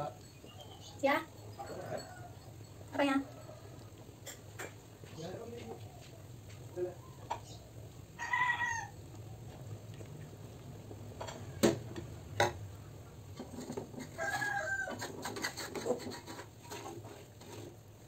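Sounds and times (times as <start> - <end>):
chicken calling: 7.0 - 9.5.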